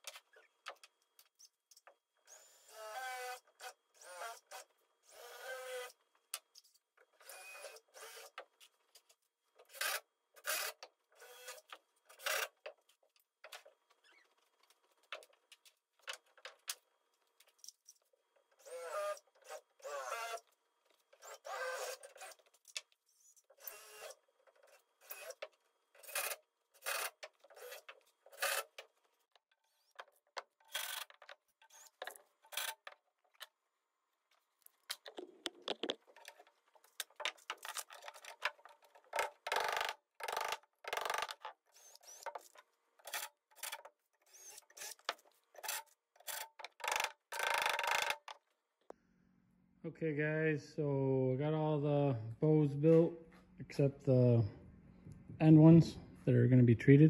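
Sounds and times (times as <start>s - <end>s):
cordless drill driving screws into wood: 7.2s - 8.4s, 18.6s - 20.4s, 21.2s - 22.5s, 23.6s - 24.2s, 25.0s - 28.8s, 39.1s - 48.3s.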